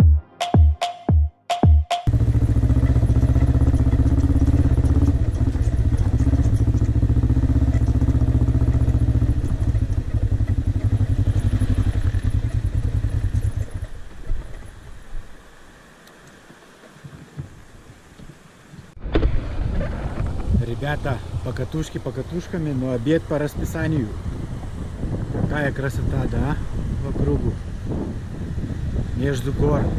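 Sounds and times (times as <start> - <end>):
motorcycle engine running: 2.1 - 15.0.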